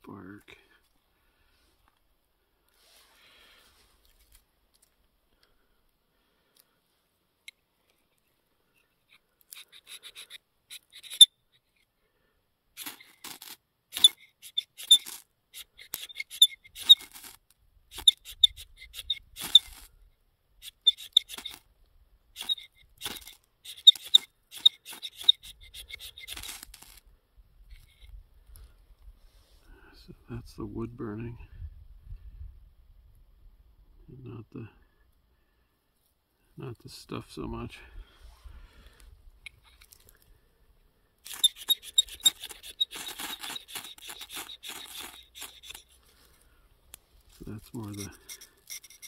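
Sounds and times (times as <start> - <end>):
ferro rod scraping strokes: 9.1 - 11.3, 12.8 - 19.9, 20.6 - 21.6, 22.4 - 27.0, 41.2 - 46.4, 47.2 - 49.0.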